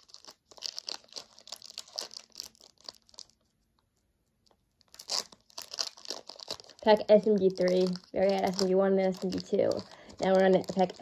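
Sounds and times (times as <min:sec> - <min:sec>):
foil wrapper crinkling and tearing: 0:00.0 - 0:03.6, 0:04.4 - 0:11.0.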